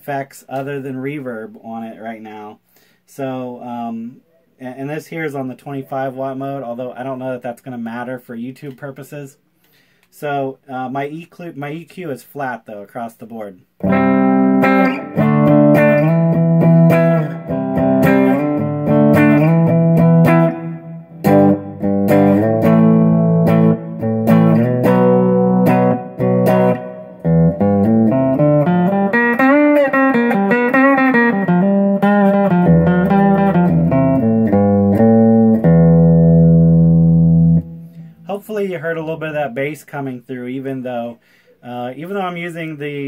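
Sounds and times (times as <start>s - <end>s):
clean electric guitar chords and notes: 13.8s - 38.3s.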